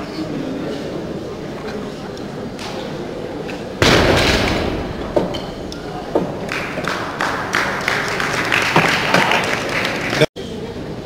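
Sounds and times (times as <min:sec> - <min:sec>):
barbell crashing onto platform: 0:03.8 - 0:06.5
audience applauding: 0:06.4 - 0:10.3.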